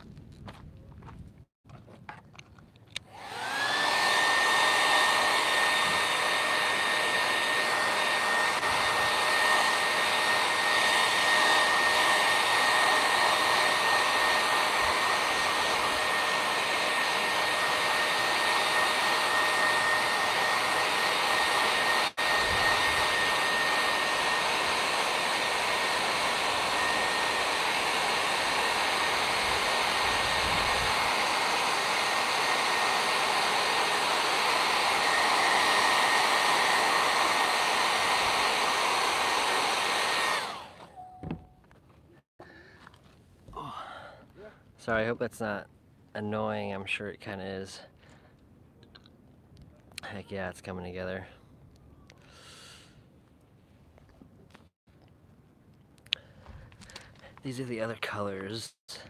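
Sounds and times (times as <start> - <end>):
hair dryer running: 3.0 - 41.5.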